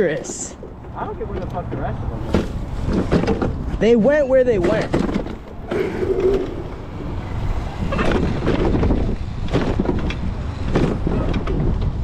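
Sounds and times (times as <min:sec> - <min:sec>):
wind buffeting microphone: 0:04.6 - 0:12.0.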